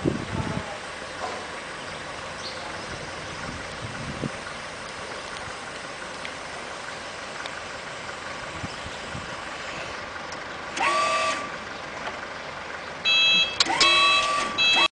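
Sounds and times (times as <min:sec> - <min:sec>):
reversing alarm beeping: 0:13.0 - 0:14.9.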